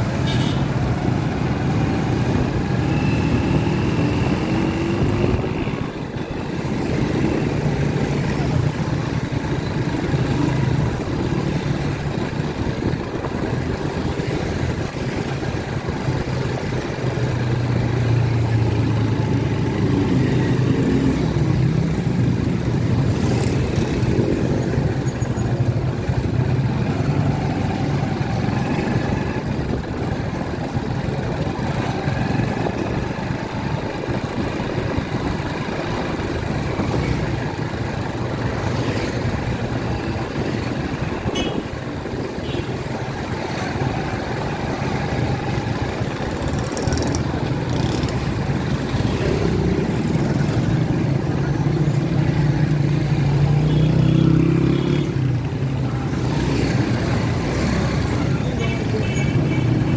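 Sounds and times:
motorcycle engines running: 0.0s - 59.9s.

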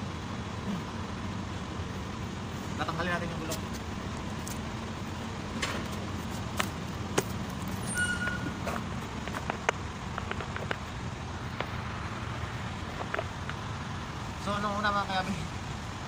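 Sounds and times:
short squeak: 7.8s - 8.8s.

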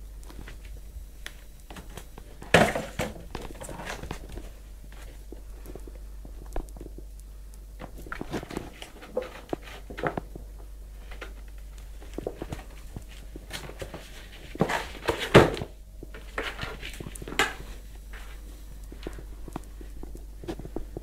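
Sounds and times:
cardboard rustling and scraping: 1.7s - 5.4s, 7.8s - 21.0s.

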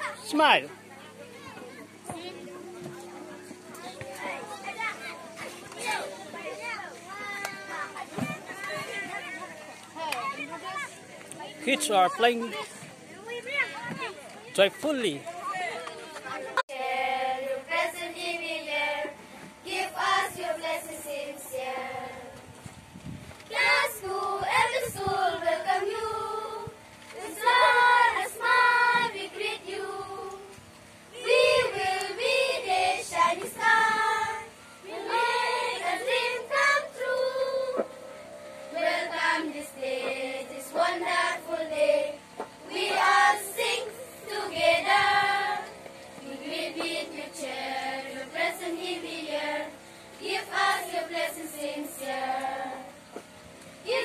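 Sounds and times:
girls singing together: 16.6s - 22.5s, 23.5s - 54.0s.

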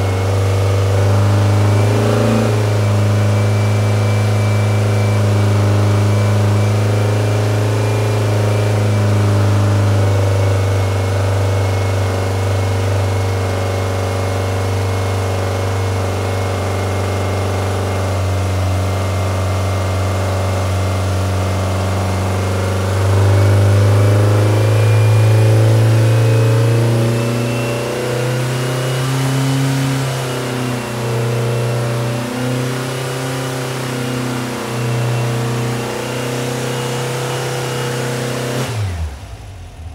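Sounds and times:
air-cooled engine running: 0.0s - 39.9s.

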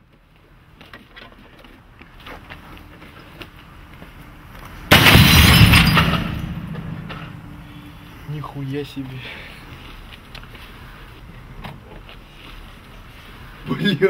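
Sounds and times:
monitor smashing on the ground: 4.9s - 7.6s.

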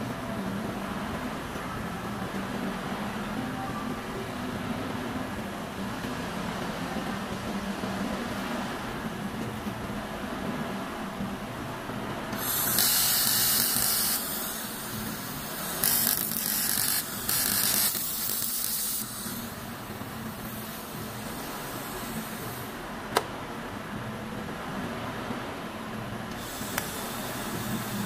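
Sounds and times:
steady low hum: 0.0s - 28.0s
gas hissing through welding torch: 12.4s - 22.8s, 26.3s - 28.0s.

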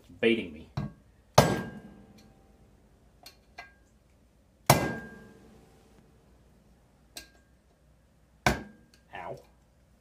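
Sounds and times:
metal ringing: 1.4s - 2.4s, 4.7s - 5.6s.

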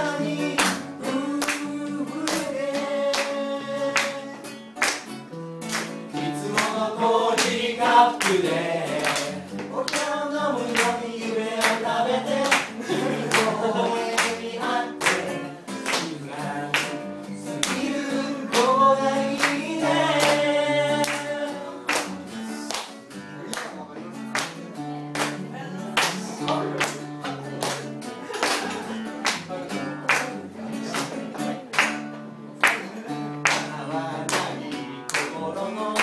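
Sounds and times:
person singing: 0.0s - 4.8s, 6.2s - 22.1s, 32.8s - 36.0s
acoustic guitar: 0.0s - 36.0s
hand claps: 0.4s - 36.0s.

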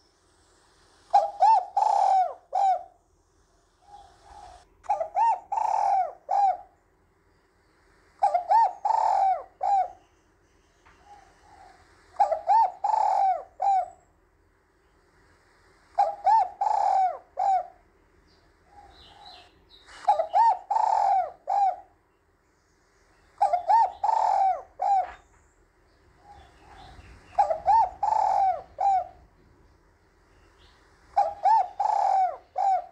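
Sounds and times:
dove cooing: 1.1s - 3.0s, 3.8s - 6.8s, 8.2s - 10.1s, 11.0s - 14.0s, 16.0s - 17.9s, 18.6s - 22.0s, 23.4s - 25.3s, 26.1s - 29.6s, 30.5s - 32.9s.

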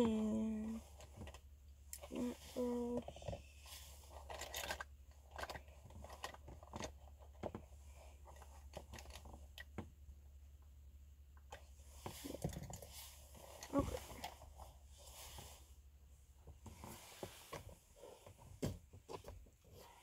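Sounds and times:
makeup items clicking and rustling: 2.9s - 10.0s.

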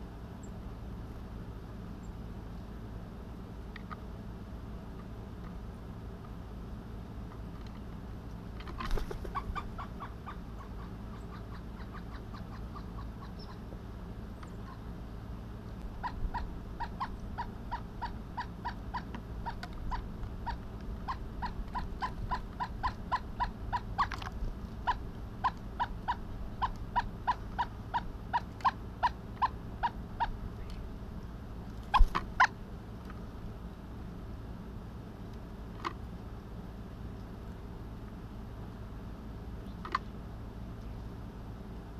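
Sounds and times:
woodpecker calling: 9.0s - 13.7s, 14.4s - 14.9s, 15.9s - 24.2s, 24.8s - 30.8s, 31.9s - 32.6s.

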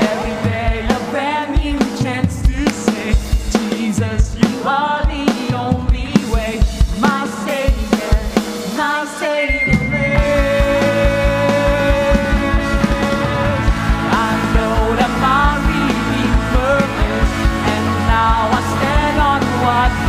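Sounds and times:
man singing: 0.0s - 20.0s
worship band playing: 0.0s - 20.0s.

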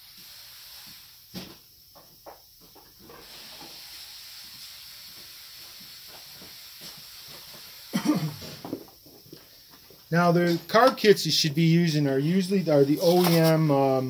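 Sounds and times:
aerosol spray hissing: 0.0s - 1.7s, 3.0s - 10.2s.

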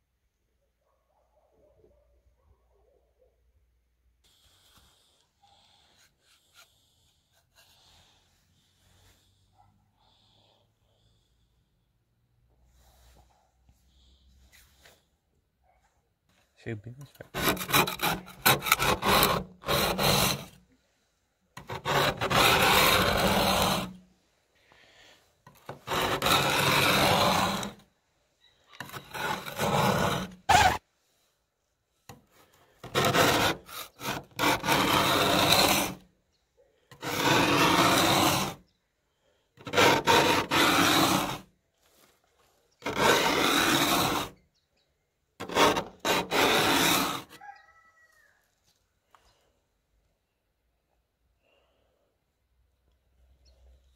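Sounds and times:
scraper blade scraping frost: 17.0s - 20.6s, 21.6s - 24.1s, 25.5s - 27.9s, 28.8s - 30.8s, 32.1s - 36.1s, 36.9s - 38.7s, 39.6s - 42.1s, 42.8s - 44.4s, 45.4s - 47.4s.

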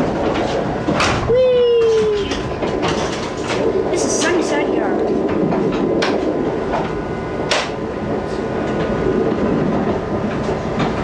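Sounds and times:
train wheels rumbling on rail: 0.0s - 11.0s
wheels clicking over track joints: 0.0s - 11.0s.

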